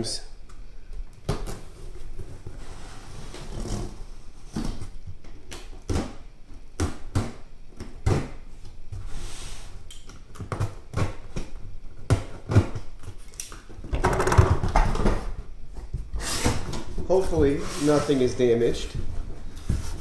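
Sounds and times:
cardboard rustling: 0:14.9 - 0:20.0.

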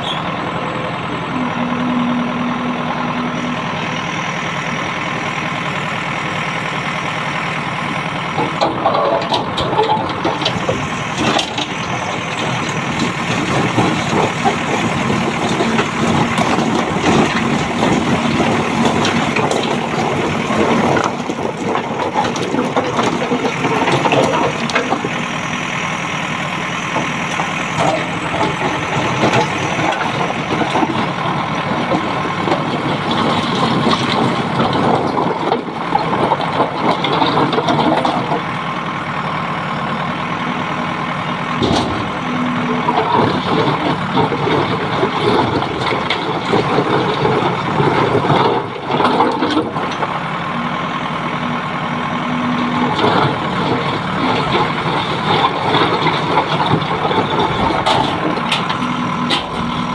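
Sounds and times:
diesel engines running: 0:00.0 - 0:59.9
rocks scraping and knocking: 0:08.4 - 0:25.3, 0:26.9 - 0:38.5, 0:52.5 - 0:59.9.

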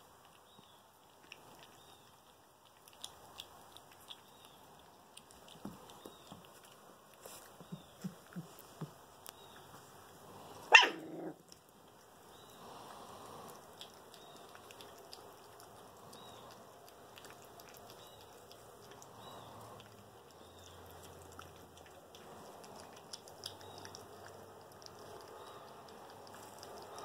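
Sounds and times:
puppies eating: 0:00.0 - 0:27.0
puppy barking: 0:10.7 - 0:11.4.

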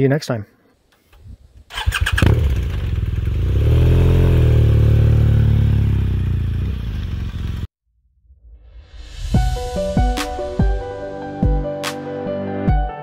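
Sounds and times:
motorcycle engine revving: 0:01.7 - 0:07.7.

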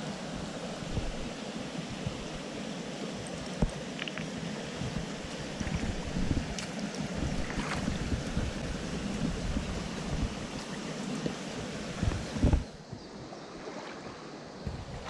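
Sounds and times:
creek water flowing: 0:00.0 - 0:15.0
wind buffeting microphone: 0:04.8 - 0:10.6, 0:11.6 - 0:13.4, 0:14.0 - 0:15.0.

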